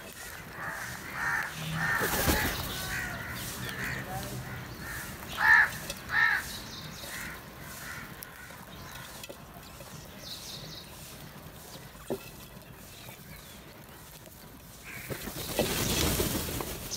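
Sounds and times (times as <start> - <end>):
crows cawing: 0.0 - 10.0, 13.8 - 15.4.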